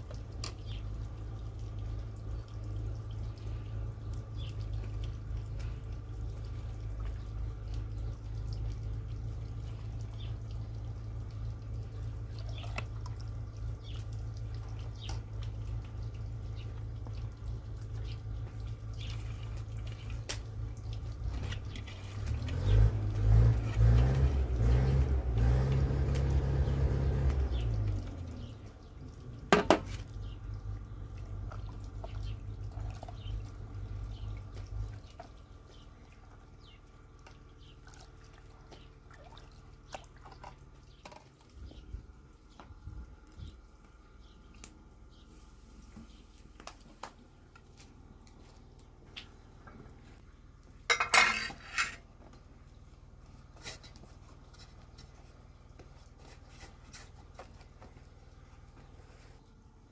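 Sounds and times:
ladle stirring wet yogurt: 0.0 - 59.9
ladle clinking metal pot: 50.9 - 52.0.

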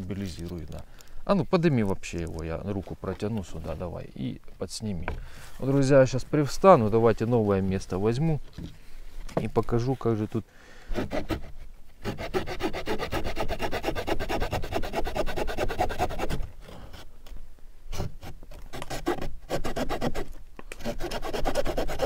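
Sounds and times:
small saw cutting branch: 10.9 - 16.5, 17.9 - 22.0.

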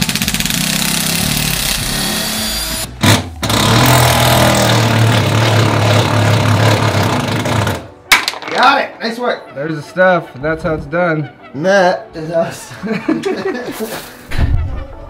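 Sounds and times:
cordless drill spinning: 0.0 - 2.9.

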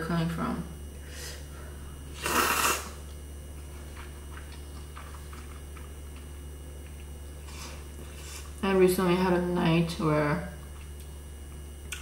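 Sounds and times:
loud noodle slurp: 2.2 - 3.0
soft chewing: 3.0 - 8.6, 10.6 - 12.0.

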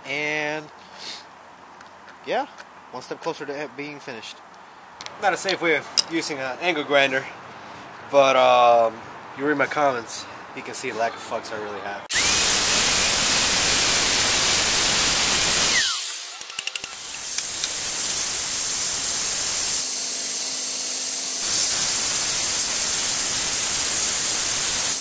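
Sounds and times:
belt grinder grinding steel: 12.1 - 19.8
angle grinder cutting metal: 12.1 - 25.0.

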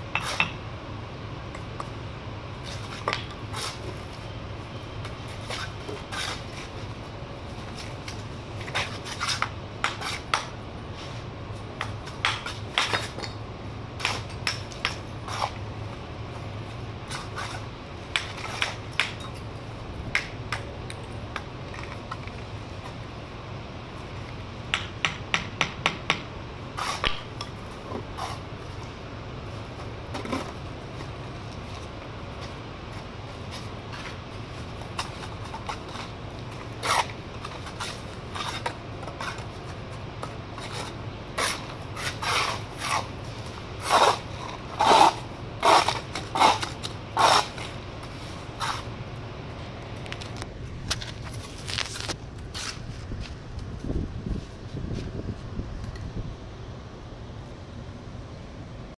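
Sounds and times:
steady low hum: 0.0 - 58.9
trowel tapping and scraping bricks: 0.1 - 0.6, 2.7 - 3.8, 8.6 - 10.5, 11.8 - 13.4, 14.0 - 15.6, 17.1 - 19.5, 24.7 - 28.4.

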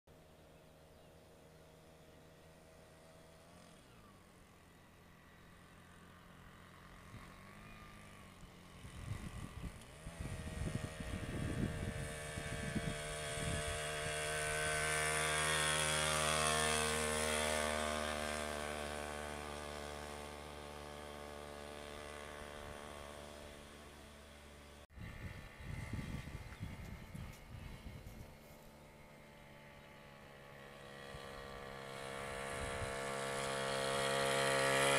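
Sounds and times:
motorcycle engine passing: 0.2 - 34.9
wind buffeting microphone: 8.8 - 14.8, 25.0 - 28.4.

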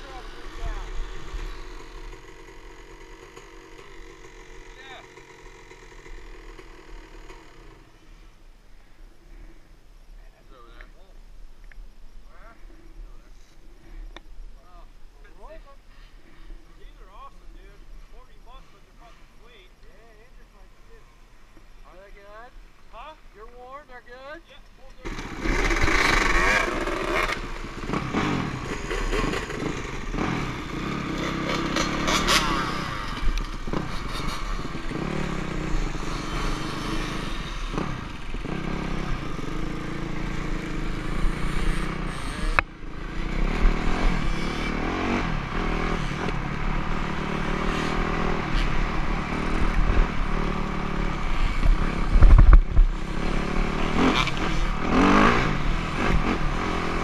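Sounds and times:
dirt bike engine revving: 0.0 - 8.4, 25.0 - 57.0.

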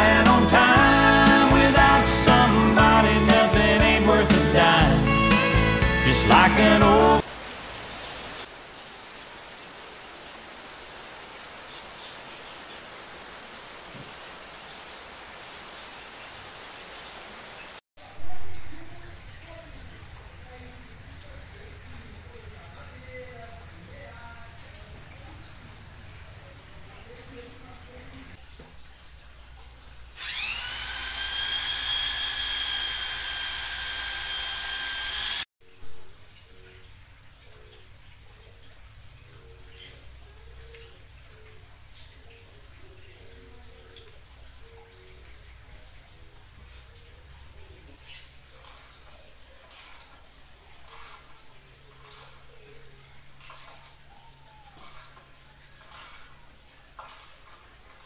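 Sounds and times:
hand tool rasping strokes: 30.2 - 35.4
cordless drill whining: 30.2 - 35.5.

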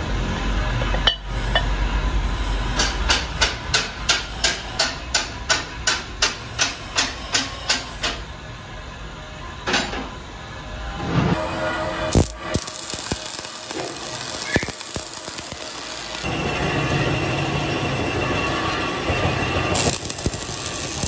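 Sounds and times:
arc welder: 11.4 - 17.2, 17.8 - 21.0.

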